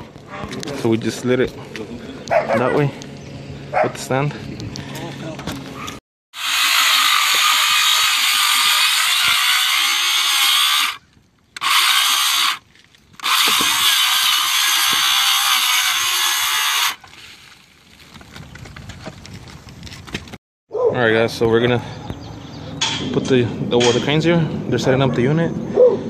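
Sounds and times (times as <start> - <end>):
circular saw cutting roofing: 6.3 - 17.1.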